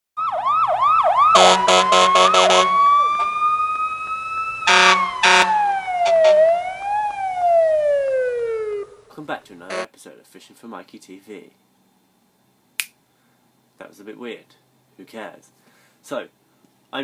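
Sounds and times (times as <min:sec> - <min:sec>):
short siren blasts: 0:00.2 - 0:09.1
siren yelping and wailing: 0:00.2 - 0:09.1.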